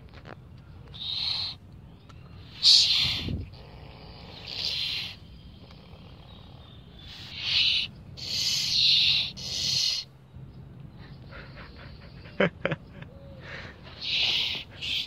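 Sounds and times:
opossums hissing: 0.9s - 1.6s, 2.4s - 10.1s, 13.8s - 15.0s.

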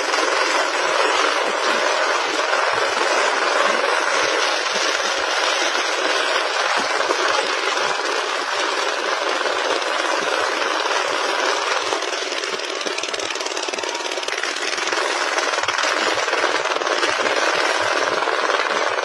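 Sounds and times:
dense roar of noise: 0.0s - 19.0s.

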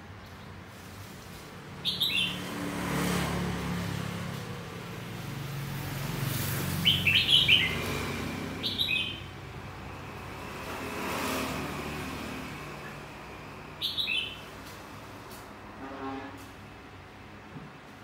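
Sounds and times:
bird singing whistled notes: 1.8s - 2.4s, 6.8s - 7.8s, 8.6s - 9.3s, 13.8s - 14.5s.

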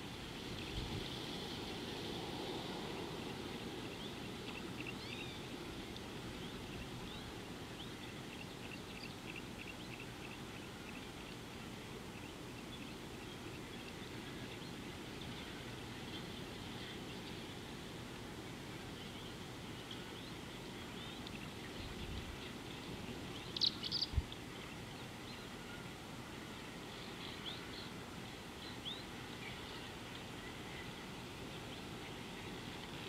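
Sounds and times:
low background hiss: 0.0s - 33.0s
birds chirping: 19.0s - 25.6s.

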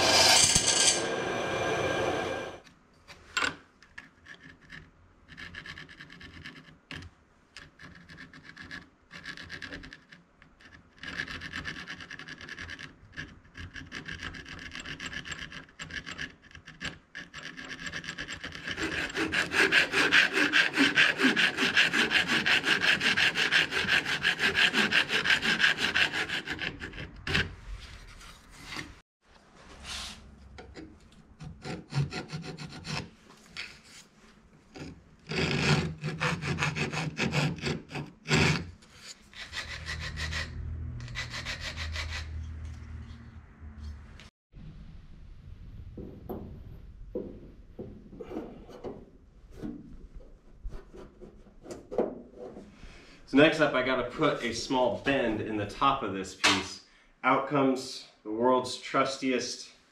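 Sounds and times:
hand tool rasping on aluminum: 0.0s - 2.2s, 13.6s - 27.6s, 34.8s - 42.4s.

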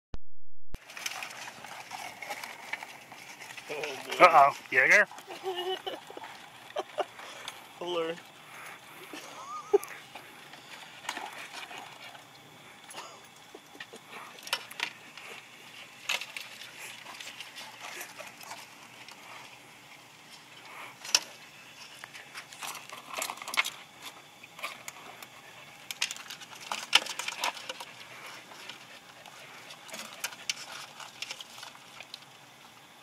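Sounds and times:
crab shells clicking and rattling: 0.8s - 4.3s, 13.3s - 33.0s.

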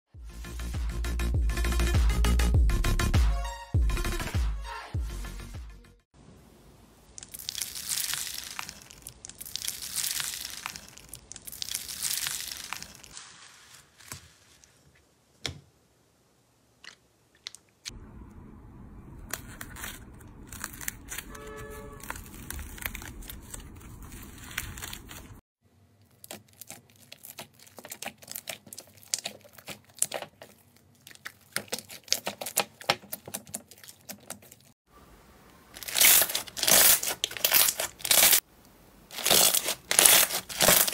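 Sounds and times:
crunchy slime swishes: 7.2s - 14.8s, 19.4s - 25.4s, 26.1s - 34.7s, 35.8s - 38.4s, 39.1s - 40.9s.

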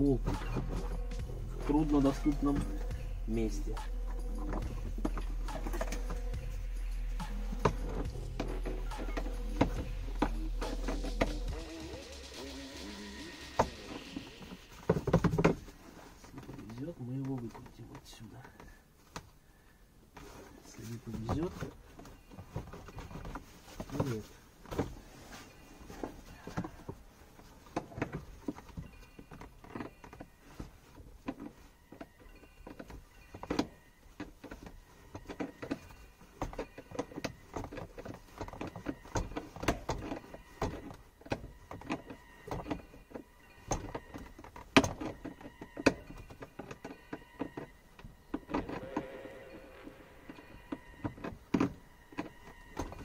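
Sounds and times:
tools knocking on metal and plastic: 27.6s - 48.8s.

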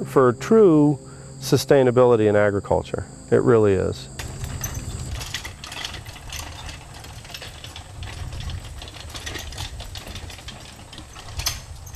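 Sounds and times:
low steady hum: 0.0s - 11.9s
mechanical clicking and rattling: 4.2s - 11.9s.

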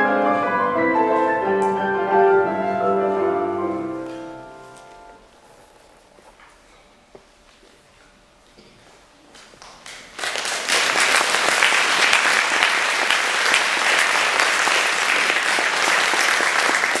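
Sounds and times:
audience applauding: 9.8s - 17.0s.

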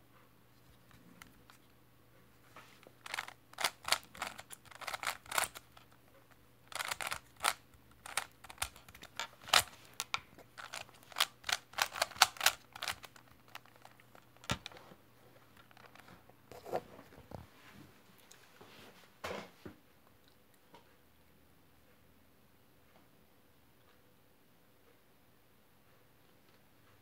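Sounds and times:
speed cube plastic clicks: 3.0s - 6.0s, 6.7s - 14.8s.

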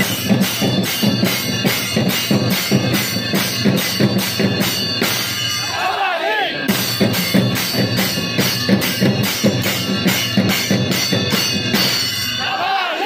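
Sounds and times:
hand cymbals clashing: 0.0s - 6.0s, 6.6s - 12.8s.

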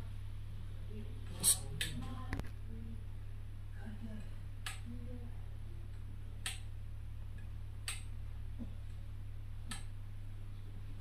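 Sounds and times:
steady low hum: 0.0s - 11.0s
click-stop control clicks: 4.6s - 4.9s, 5.9s - 6.7s, 7.4s - 8.1s, 9.7s - 9.9s.

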